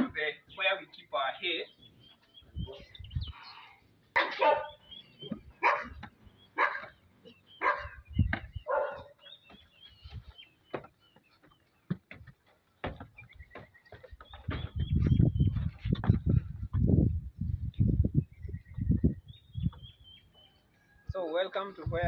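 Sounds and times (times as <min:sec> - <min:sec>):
dog barking: 0:04.2 - 0:04.8, 0:05.6 - 0:06.0, 0:06.6 - 0:06.9, 0:07.6 - 0:08.0, 0:08.6 - 0:09.2
footfalls on wooden stairs: 0:10.7 - 0:16.4
faint bird chirps: 0:17.9 - 0:21.2.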